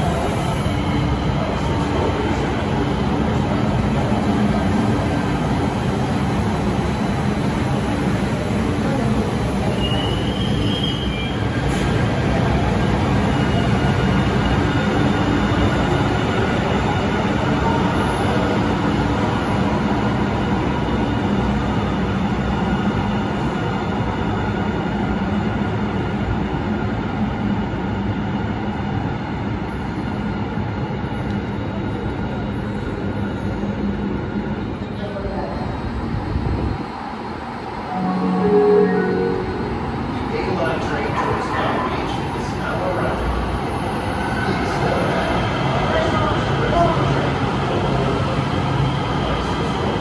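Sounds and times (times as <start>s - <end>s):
train wheels rumbling on rail: 0.0s - 37.9s
high-pitched train squeal: 9.7s - 11.9s.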